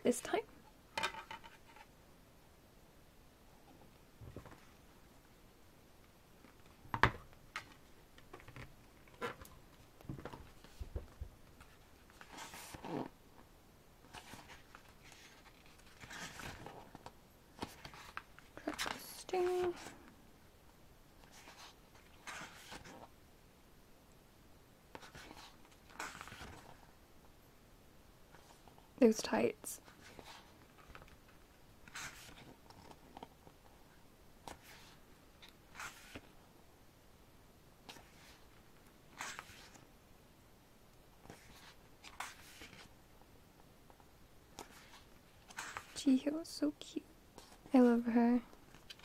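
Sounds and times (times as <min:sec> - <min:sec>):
book pages turning: 0:07.5 - 0:13.1, 0:14.0 - 0:19.9, 0:21.2 - 0:23.1, 0:24.9 - 0:26.9, 0:29.8 - 0:36.4, 0:37.8 - 0:39.9, 0:41.2 - 0:42.9, 0:43.9 - 0:46.0, 0:48.6 - 0:49.0.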